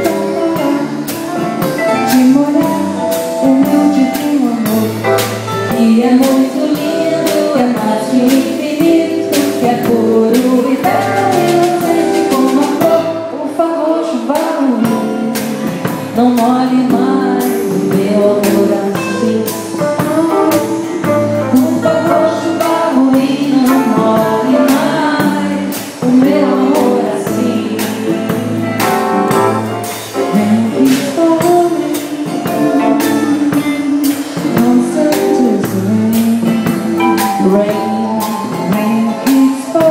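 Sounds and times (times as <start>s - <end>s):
woman singing: 0.0s - 28.9s, 30.2s - 39.9s
acoustic guitar: 0.0s - 39.9s
keyboard: 0.0s - 39.9s
upright bass: 0.0s - 39.9s.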